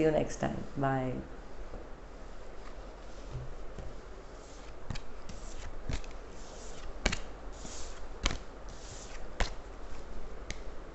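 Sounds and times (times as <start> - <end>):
cards being shuffled: 2.6 - 10.7.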